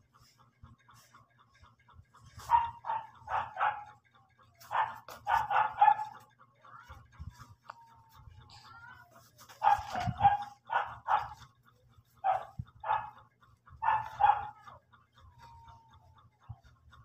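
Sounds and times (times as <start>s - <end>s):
dog barking: 2.4s - 4.0s, 4.6s - 6.2s, 9.6s - 11.5s, 12.2s - 13.2s, 13.8s - 14.8s.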